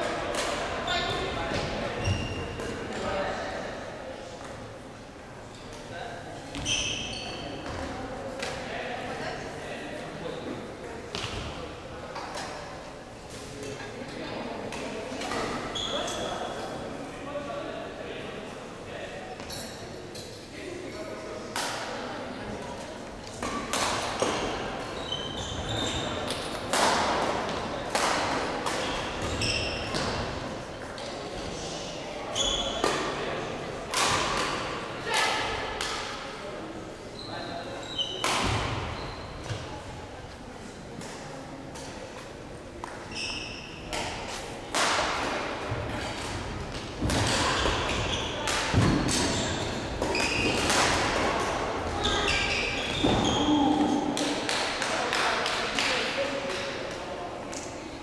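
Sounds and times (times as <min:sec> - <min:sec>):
sneaker squeaks on floor: 0:02.0 - 0:02.6, 0:06.5 - 0:07.9, 0:15.6 - 0:16.6, 0:24.4 - 0:26.5, 0:28.8 - 0:30.2, 0:32.3 - 0:33.0, 0:37.2 - 0:39.8, 0:43.1 - 0:44.1, 0:47.4 - 0:50.8, 0:52.0 - 0:53.7
rackets hitting shuttlecock: 0:26.3 - 0:30.2, 0:38.2 - 0:39.6, 0:43.9 - 0:51.6.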